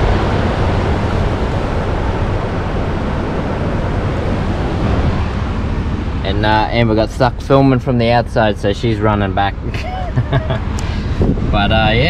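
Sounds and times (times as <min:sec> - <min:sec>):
vehicle driving on sand: 0:00.0 - 0:12.0
wind buffeting microphone: 0:00.0 - 0:12.0.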